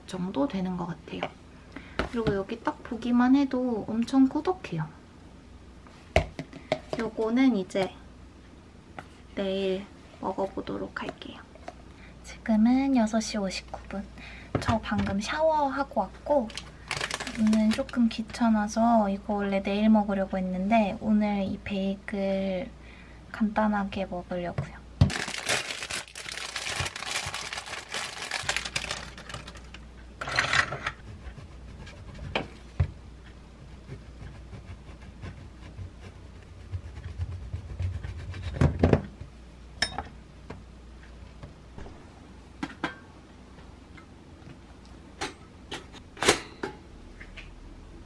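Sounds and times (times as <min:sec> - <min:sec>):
plastic bag crinkling: 0:16.5 - 0:18.1, 0:25.1 - 0:29.8
knife sawing bread on board: 0:33.7 - 0:38.6.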